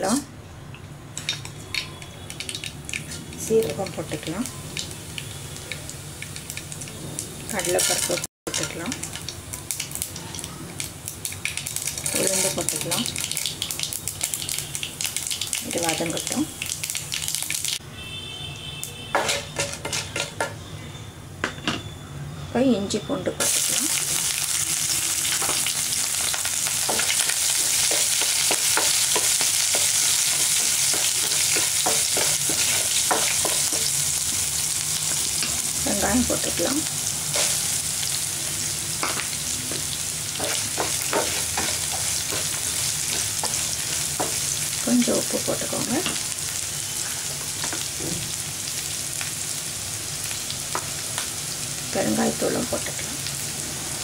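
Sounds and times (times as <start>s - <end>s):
food sizzling in hot oil: 1.2s - 17.8s, 18.9s - 20.4s, 23.0s - 54.0s
spatula scraping pan: 19.1s - 20.5s.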